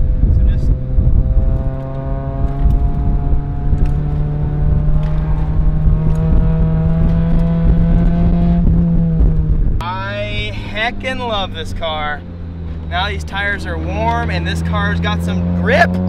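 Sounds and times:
car engine accelerating hard: 0:00.0 - 0:16.0.

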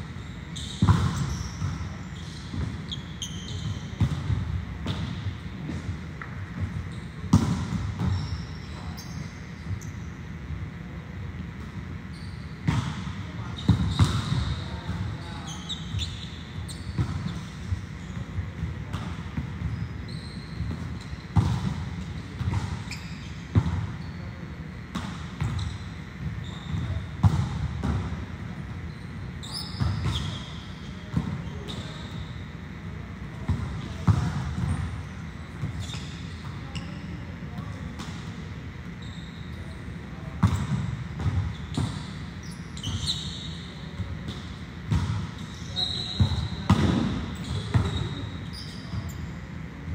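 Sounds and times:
shoe squeaks: 0:00.1 - 0:04.2, 0:06.7 - 0:07.3, 0:08.0 - 0:10.3, 0:12.1 - 0:18.4, 0:19.6 - 0:24.5, 0:25.4 - 0:27.1, 0:28.8 - 0:32.6, 0:34.6 - 0:37.6, 0:38.9 - 0:44.4, 0:45.3 - 0:49.5
volleyballs thudding on gym floor: 0:03.9 - 0:08.2, 0:46.1 - 0:48.2
short high squeak: 0:28.9 - 0:30.6, 0:42.4 - 0:43.7, 0:47.4 - 0:49.3.

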